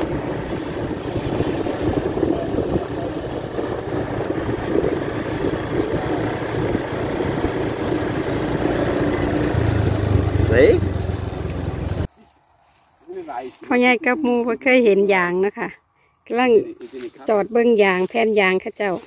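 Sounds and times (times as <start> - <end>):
wind on microphone: 0.0 - 9.8
motorcycle engine running: 0.0 - 12.1.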